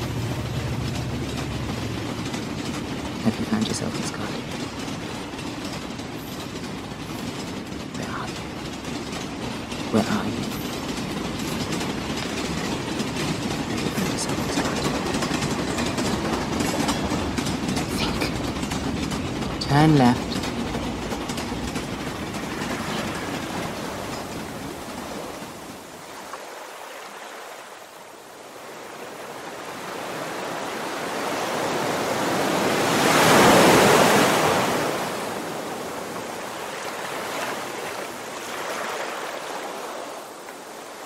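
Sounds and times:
rushing wash of noise: 0.0s - 5.4s.

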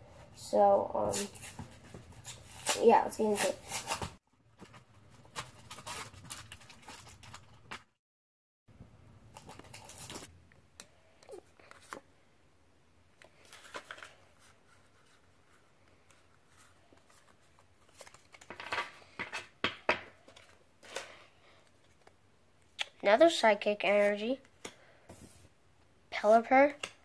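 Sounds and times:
cards rustling: 9.3s - 12.1s, 13.2s - 19.5s.

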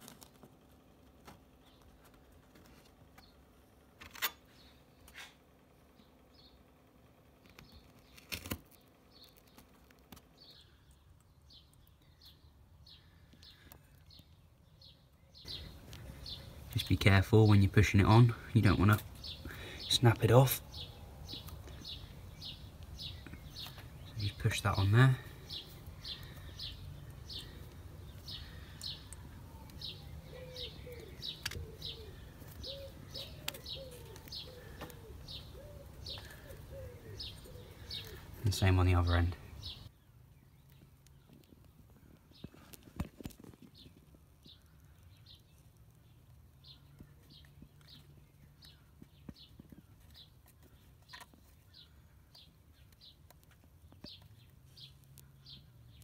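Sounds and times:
faint bird chirping: 1.5s - 56.0s
pigeon cooing: 28.4s - 38.3s.

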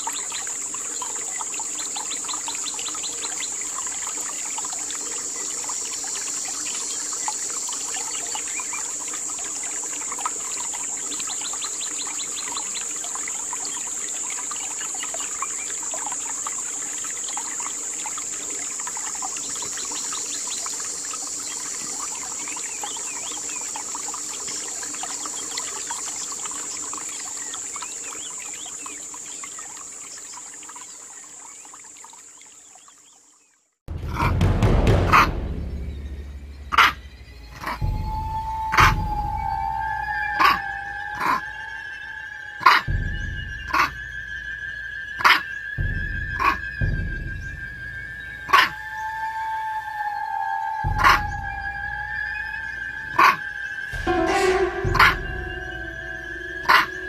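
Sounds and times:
high-pitched insect drone: 37.2s - 57.0s.

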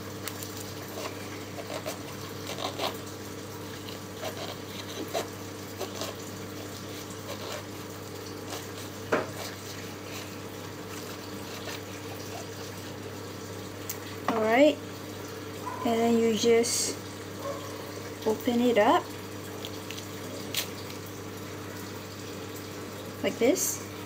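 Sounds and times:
knife crunching through rind: 0.2s - 3.1s, 3.7s - 12.6s, 19.5s - 21.0s.

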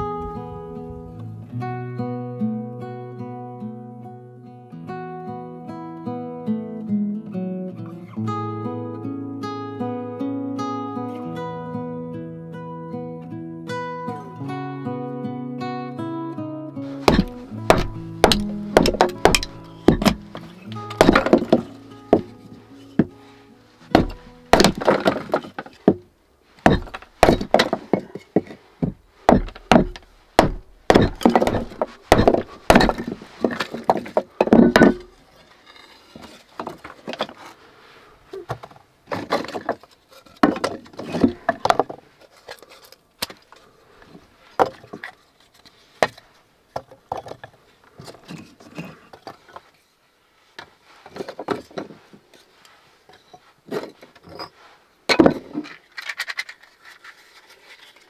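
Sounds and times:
scraping in iron firebox: 16.9s - 25.9s
firewood knocking and clattering: 17.0s - 23.2s, 23.8s - 35.2s, 38.5s - 42.6s, 55.1s - 56.5s.

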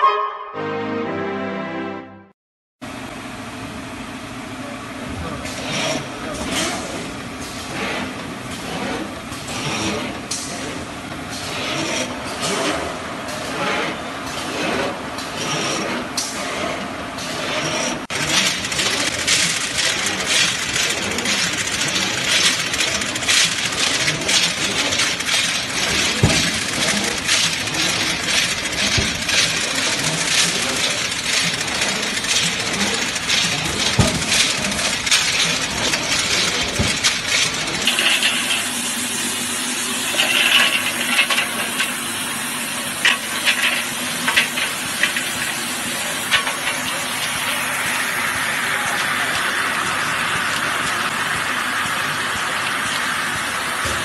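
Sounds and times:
filling machine running: 2.8s - 54.0s.

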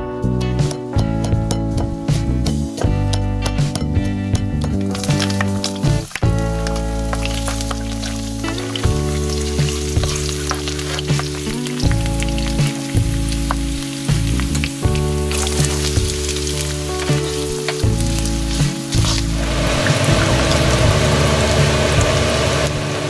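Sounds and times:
garlic and onion sizzling in oil: 1.2s - 23.0s
spatula stirring in wok: 4.0s - 21.6s.

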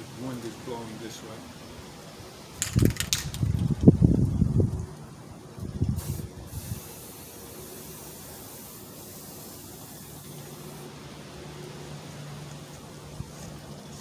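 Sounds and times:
spray paint can hissing: 6.0s - 10.9s.

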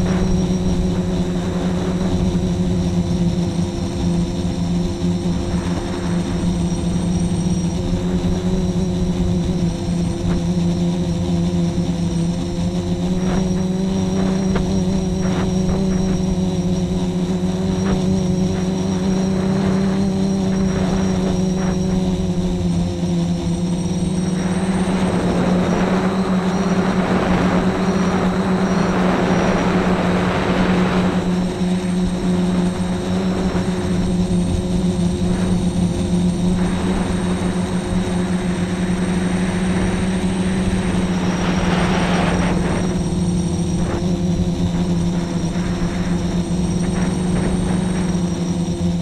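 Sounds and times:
drone propellers humming: 0.0s - 49.0s
rushing noise: 11.0s - 49.0s.

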